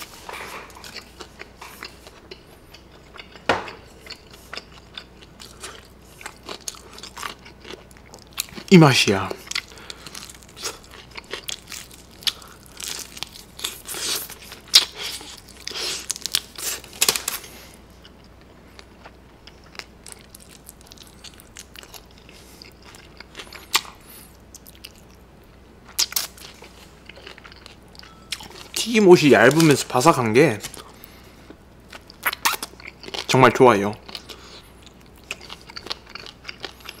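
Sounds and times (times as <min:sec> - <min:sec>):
crunching fried chicken: 0:00.4 - 0:17.7, 0:34.0 - 0:37.0.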